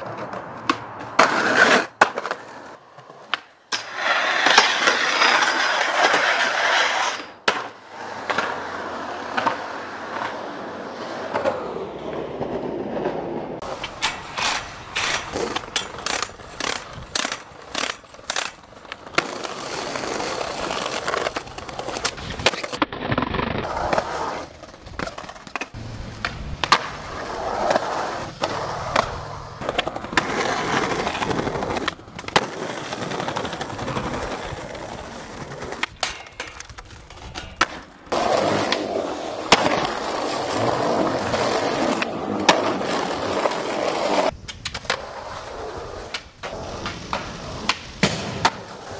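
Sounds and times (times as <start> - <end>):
skateboard pops and landings: 0.0 - 10.4, 24.9 - 48.9
skateboards rolling on concrete: 0.0 - 48.9.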